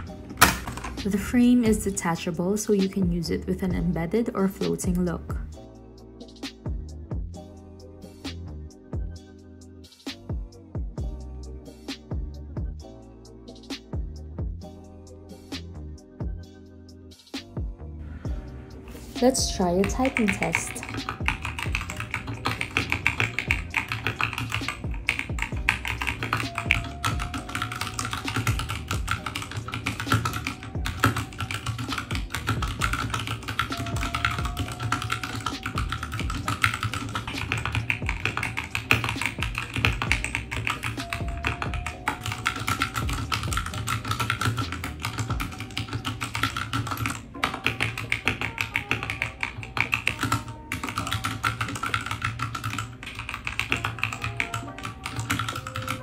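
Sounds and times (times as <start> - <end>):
background music: 0.0 - 56.0
fast typing on mechanical keyboard: 19.3 - 56.0.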